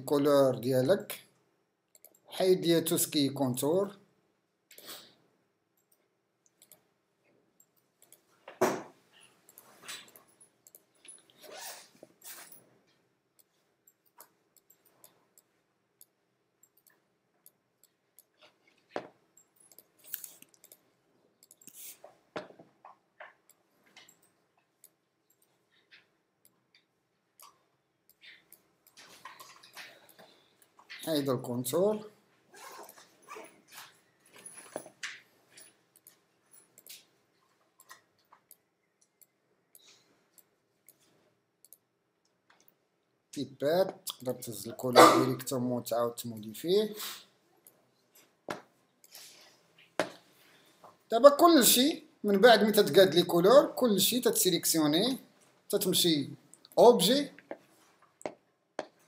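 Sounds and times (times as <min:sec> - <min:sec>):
computer mouse clicking: 0:01.9 - 0:02.2, 0:05.8 - 0:06.8, 0:07.6 - 0:08.2, 0:09.5 - 0:10.9, 0:13.4 - 0:18.4, 0:19.4 - 0:20.8, 0:21.4 - 0:22.0, 0:37.8 - 0:41.9.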